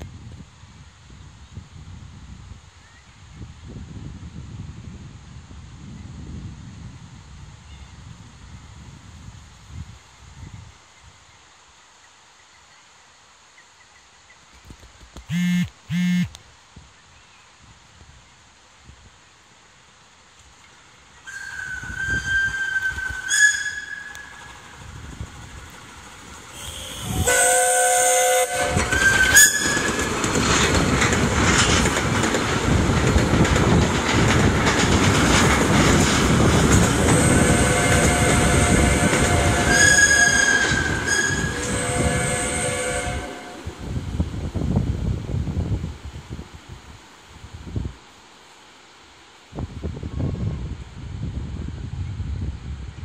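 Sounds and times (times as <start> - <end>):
steam exhaust: 15.3 - 16.3, 21.2 - 46.5
steam whistle blasts: 15.3 - 16.3, 21.2 - 24.8, 26.5 - 30.1, 37.1 - 43.8
wheels clattering on rails: 28.4 - 42.6.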